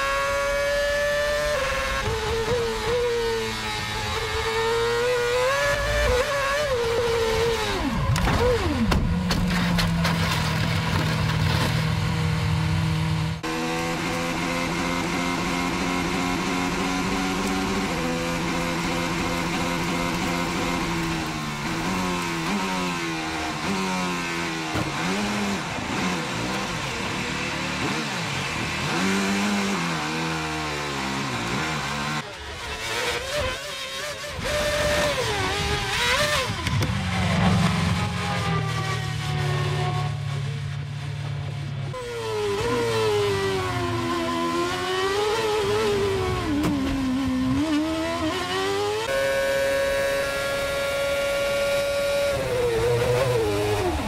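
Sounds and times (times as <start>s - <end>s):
racing car engine: 0.0s - 54.0s.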